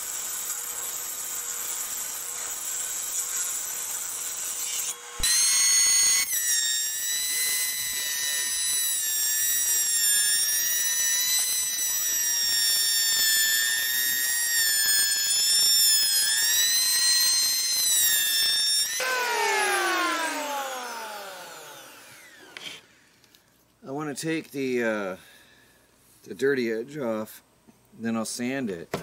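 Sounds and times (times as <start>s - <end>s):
electric hand planer whining: 0.0s - 22.9s.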